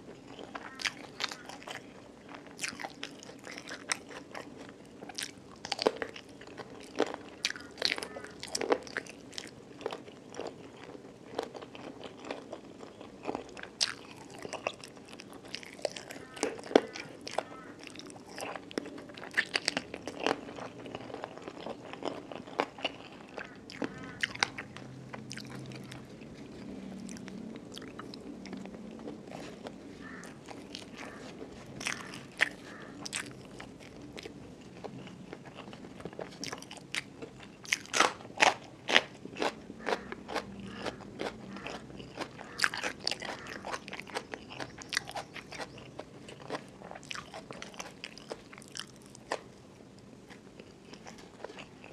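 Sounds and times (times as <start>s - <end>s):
close chewing with crisp crunches: 0.0s - 51.9s.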